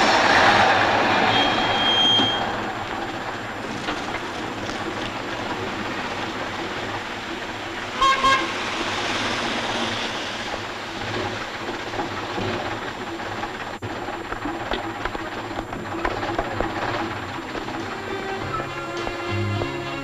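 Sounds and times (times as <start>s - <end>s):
street traffic noise: 0.0s - 20.0s
vehicle horn toots: 1.2s - 2.6s, 8.0s - 8.7s.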